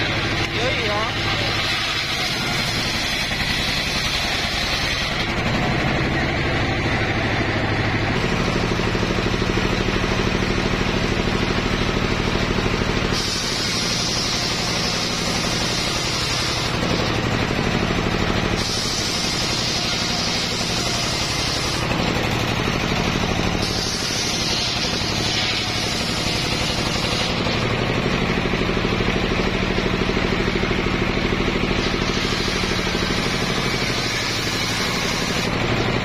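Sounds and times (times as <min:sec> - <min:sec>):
engine humming: 0:00.0 - 0:13.2
circular saw cutting wood: 0:00.0 - 0:36.0.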